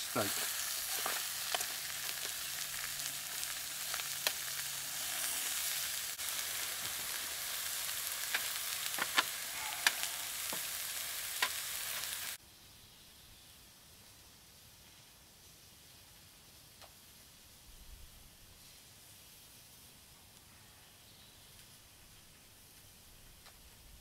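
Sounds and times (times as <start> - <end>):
steak sizzling in a frying pan: 0.0 - 12.4
sharp pops of frying meat: 0.1 - 12.4.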